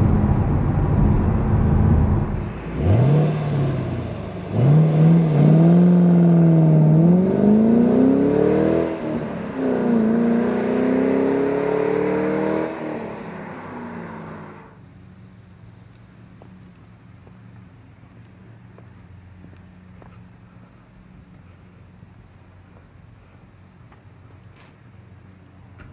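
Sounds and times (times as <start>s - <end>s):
car engine accelerating hard: 0.0s - 14.8s.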